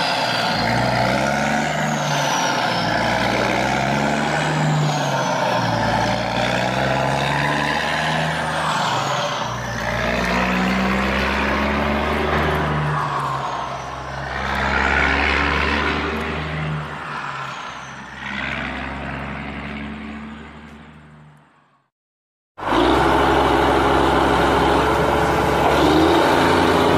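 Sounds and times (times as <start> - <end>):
heavy truck engine running: 22.6 - 26.9.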